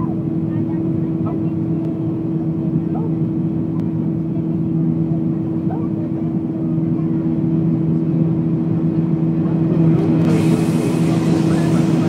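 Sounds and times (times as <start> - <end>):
jet engines droning: 0.0 - 12.0
rushing air: 9.7 - 12.0.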